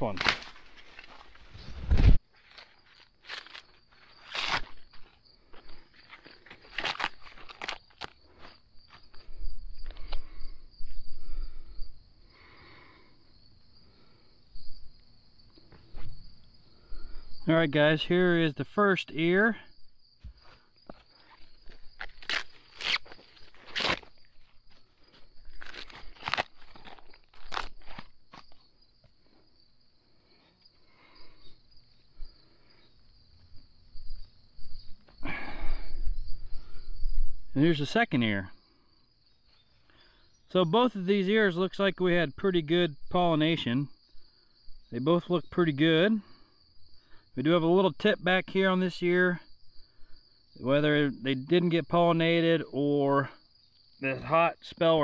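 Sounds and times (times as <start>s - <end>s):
corn husk ripping: 0.0s - 1.3s, 2.5s - 4.8s, 6.1s - 8.2s, 22.0s - 24.1s, 25.6s - 28.2s
light rustling of corn silks: 0.0s - 11.1s, 20.2s - 29.6s
crickets chirring: 0.0s - 55.0s.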